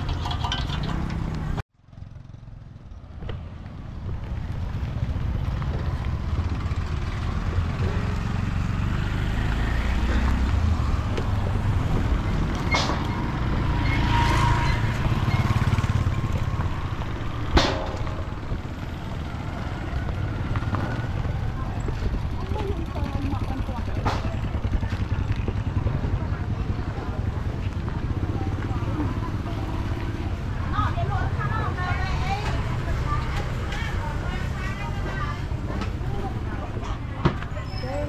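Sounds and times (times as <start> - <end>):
passing motor traffic rumble: 0.0 - 38.0.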